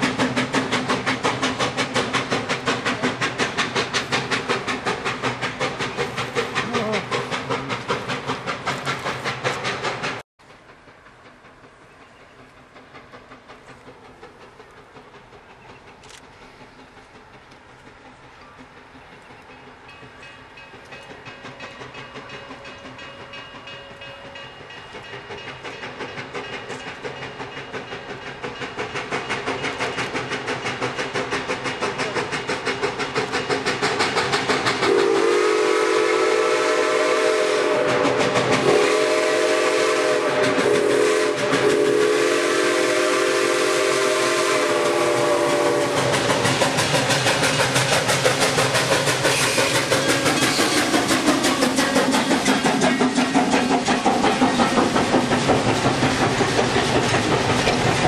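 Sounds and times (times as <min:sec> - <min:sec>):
steam locomotive chuffing: 0:00.0 - 0:58.0
train chime whistle blasts: 0:34.9 - 0:46.0.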